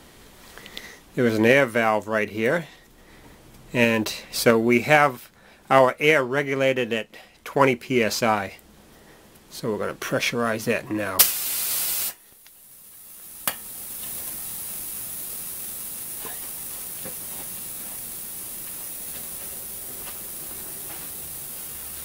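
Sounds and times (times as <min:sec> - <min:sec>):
compressed air hissing: 0:11.2 - 0:22.0.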